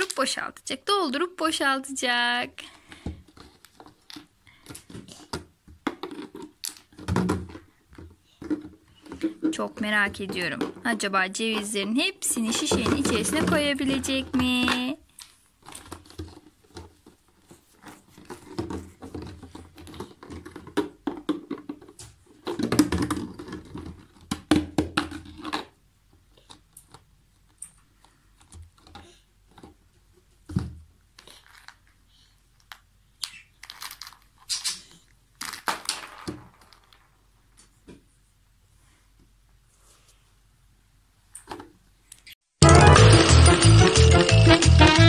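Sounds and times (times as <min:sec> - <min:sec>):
walnuts rattling in plastic bottle: 0:08.5 - 0:15.0
plastic bottle crinkling: 0:12.4 - 0:25.8, 0:31.2 - 0:32.0, 0:32.6 - 0:37.2.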